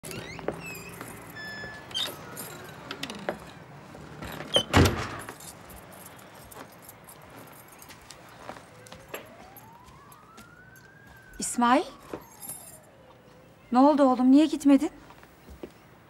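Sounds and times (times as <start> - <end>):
keys jangling: 0.7 - 2.9, 4.2 - 8.0, 12.2 - 12.9.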